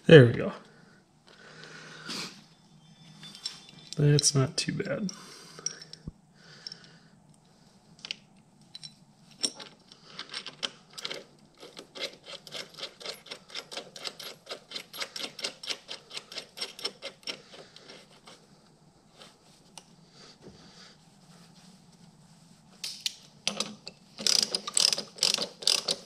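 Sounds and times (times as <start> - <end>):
ratchet wrench clicking: 23.5 - 26.0.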